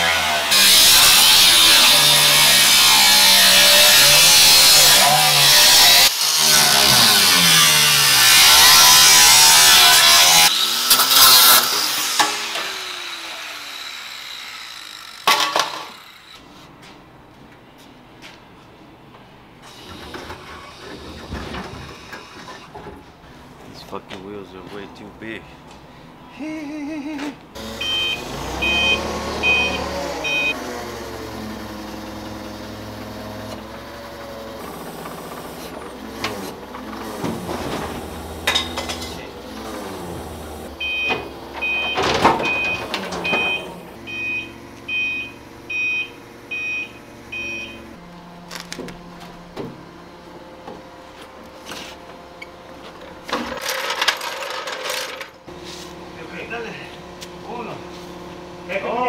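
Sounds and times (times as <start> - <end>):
forklift engine revving: 0.0 - 14.2, 27.5 - 54.5
backup alarm beeping: 27.8 - 30.6, 40.8 - 48.0.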